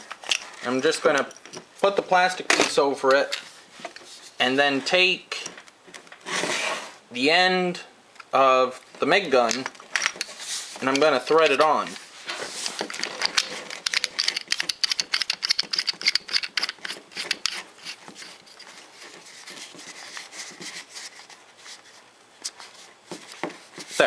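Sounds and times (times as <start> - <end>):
plastic rubbing: 9.4 - 24.0
metal threads clicking and scraping: 12.6 - 18.7.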